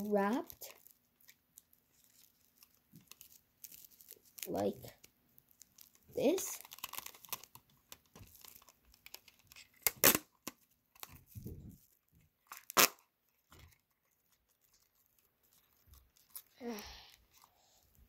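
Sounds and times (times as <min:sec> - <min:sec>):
sticky tape tearing: 0:09.7 - 0:10.6, 0:12.5 - 0:13.1
handling rustle: 0:13.3 - 0:16.6.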